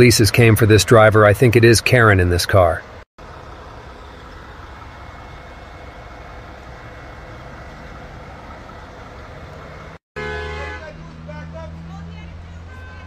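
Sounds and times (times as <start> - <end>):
street background noise: 0.0 - 13.0
diesel truck engine idling: 2.6 - 13.0.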